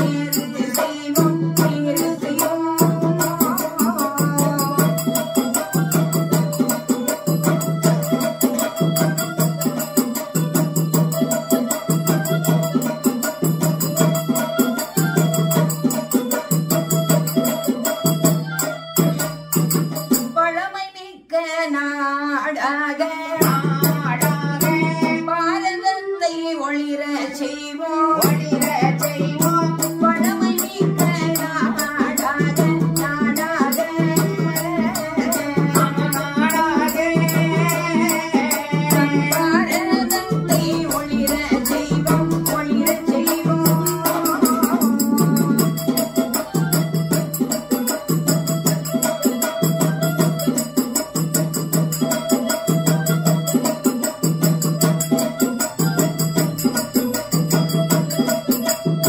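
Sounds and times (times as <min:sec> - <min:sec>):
woman singing folk song: 0:00.0 - 0:05.5, 0:20.4 - 0:45.8.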